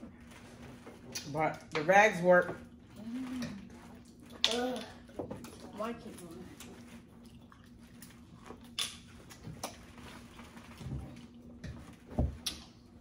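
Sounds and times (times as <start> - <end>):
chewing: 6.5 - 11.6.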